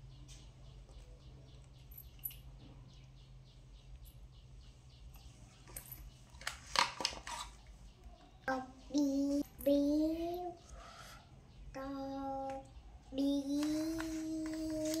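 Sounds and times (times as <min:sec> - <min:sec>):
low steady hum: 0:00.0 - 0:15.0
plastic toys clattering: 0:05.7 - 0:07.7.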